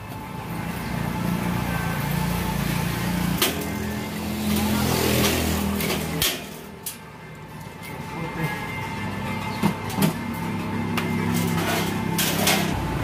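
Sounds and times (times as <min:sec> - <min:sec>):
vehicle engine running: 0:00.0 - 0:13.0.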